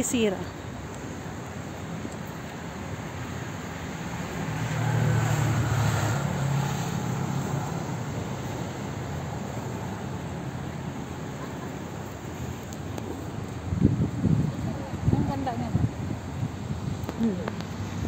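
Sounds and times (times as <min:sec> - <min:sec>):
vehicle engine passing: 0:03.1 - 0:16.0.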